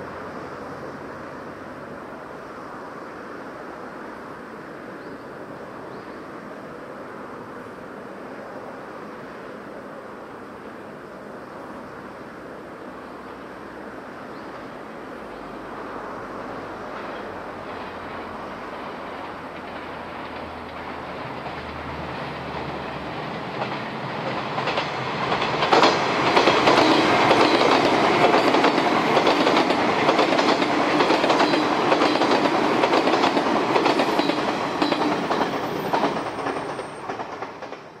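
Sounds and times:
electric train passing: 0.0s - 38.0s
wheels clacking over rail joints: 16.7s - 38.0s.

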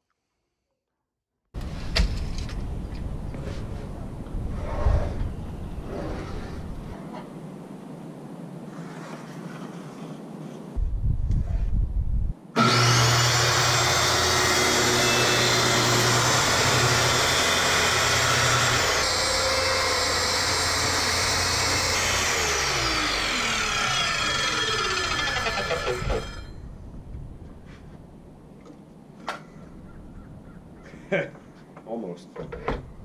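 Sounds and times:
low rumble: 10.8s - 12.4s
circular saw cutting wood: 12.6s - 26.6s.

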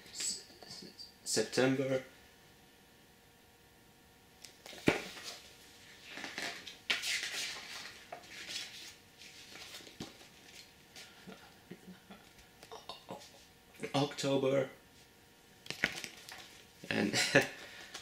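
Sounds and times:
paper rustling and crinkling: 4.7s - 10.7s.

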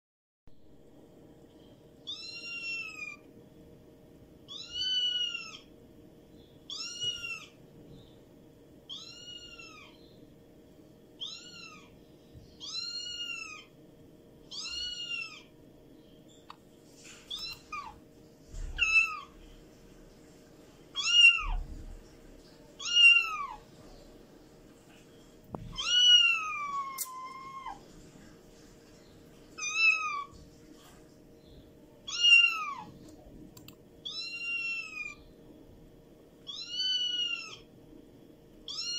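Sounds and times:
kitten meowing: 2.1s - 3.2s, 4.5s - 5.7s, 6.7s - 7.6s, 8.9s - 10.0s, 11.2s - 11.9s, 14.5s - 15.5s, 17.3s - 18.0s, 18.7s - 19.3s, 21.0s - 21.6s, 22.8s - 23.6s, 25.6s - 27.8s, 29.6s - 30.3s, 32.1s - 32.9s, 34.0s - 35.2s, 36.4s - 37.7s, 38.7s - 38.9s.

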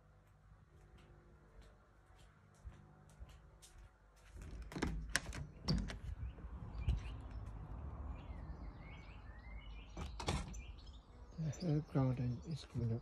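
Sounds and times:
door handle and latch clicking: 4.6s - 6.1s
birds chirping: 5.4s - 13.0s.

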